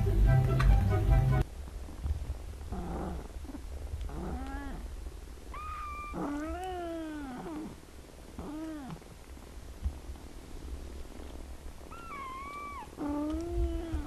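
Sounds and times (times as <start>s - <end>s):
kittens meowing: 4.1s - 4.9s, 5.5s - 7.8s, 8.4s - 9.1s, 11.9s - 14.0s.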